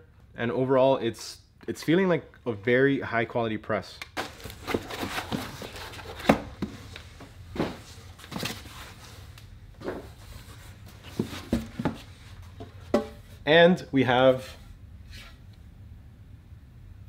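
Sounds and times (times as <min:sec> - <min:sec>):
cardboard box being handled: 0:04.2 - 0:06.7, 0:09.9 - 0:12.4.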